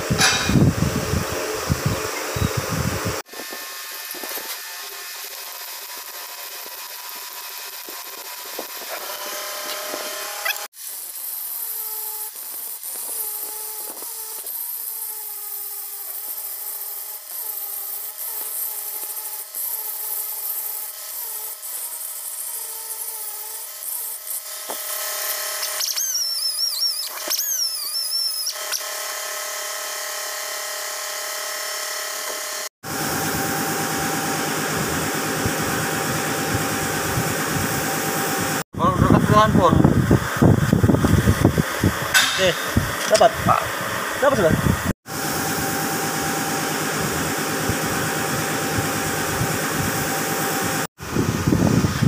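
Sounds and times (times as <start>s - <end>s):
low mechanical running hum: 0.0s - 6.0s, 32.9s - 38.6s, 43.7s - 52.0s
angle grinder grinding metal: 0.0s - 50.9s.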